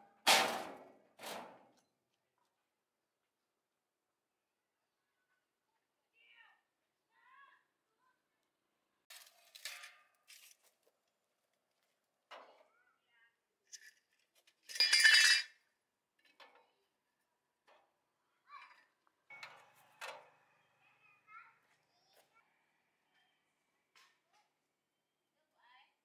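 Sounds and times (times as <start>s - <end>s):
metal tools clinking: 13.7s - 15.6s.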